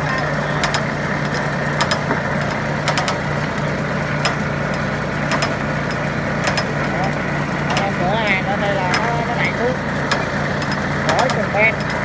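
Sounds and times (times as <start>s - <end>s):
conveyor chain clicking and clanking: 0.0s - 12.0s
engine running steadily: 0.0s - 12.0s.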